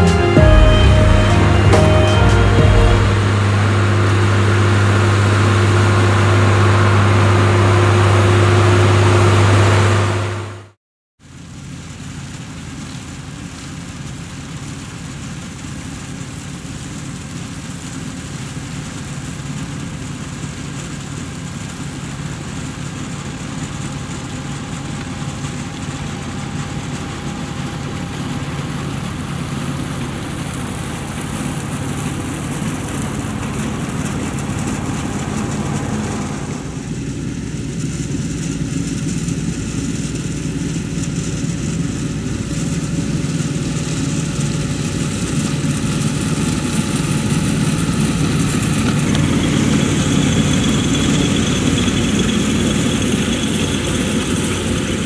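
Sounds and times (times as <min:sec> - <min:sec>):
held music chord: 0:00.0 - 0:08.5, 0:30.2 - 0:36.8
tractor engine running: 0:00.0 - 0:10.4, 0:19.8 - 0:55.0.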